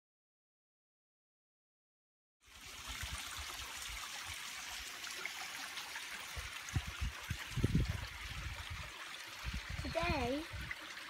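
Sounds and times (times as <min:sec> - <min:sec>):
stream trickling over stones: 0:02.4 - 0:11.0.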